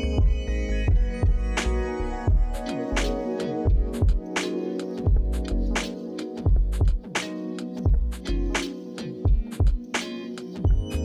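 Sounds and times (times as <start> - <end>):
background music with beat: 0.0 - 11.0
kick drum thuds: 0.2 - 1.5, 2.3 - 2.5, 3.7 - 4.3, 5.1 - 5.4, 6.5 - 7.0, 7.9 - 8.1, 9.3 - 9.8, 10.7 - 10.9.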